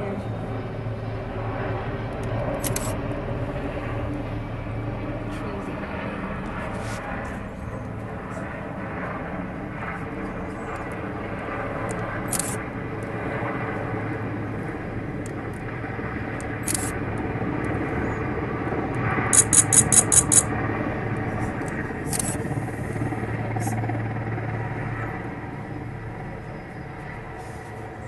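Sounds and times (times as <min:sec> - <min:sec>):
helicopter rotors droning: 0:00.0 - 0:28.0
sharp clicks: 0:11.8 - 0:12.6, 0:16.4 - 0:16.9, 0:19.3 - 0:20.4, 0:22.1 - 0:22.4.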